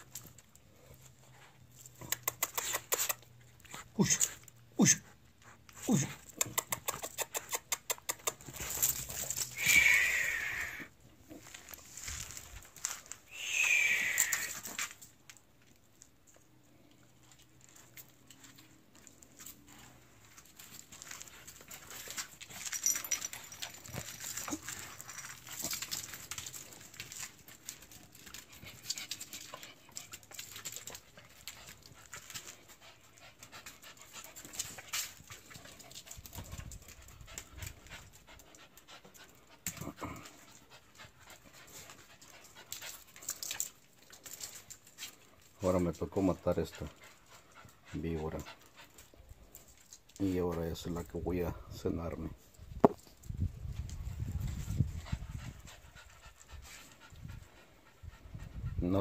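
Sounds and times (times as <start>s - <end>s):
scuffling on concrete floor: 8.3s - 16.1s
dogs panting: 17.1s - 50.2s, 53.7s - 59.0s.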